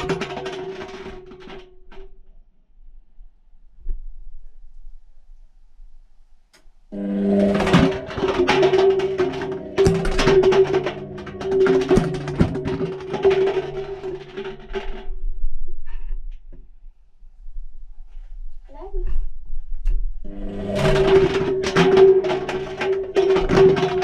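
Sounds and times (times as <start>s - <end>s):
plastic cups clattering in drum: 0.0s - 2.0s, 7.0s - 15.1s, 20.3s - 24.0s.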